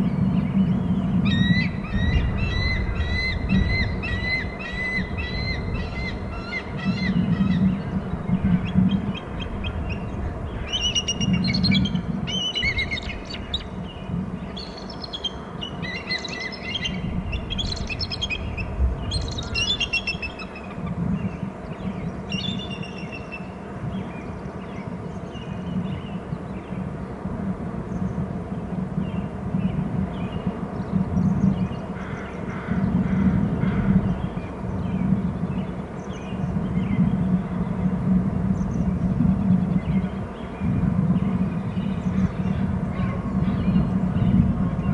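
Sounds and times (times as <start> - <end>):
steady low rumble: 0.0 - 44.9.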